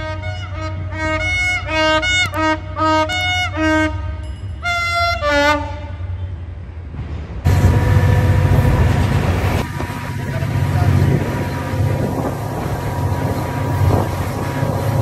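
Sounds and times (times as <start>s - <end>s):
diesel locomotives rumbling: 0.0s - 15.0s
train rushing in motion: 5.9s - 15.0s.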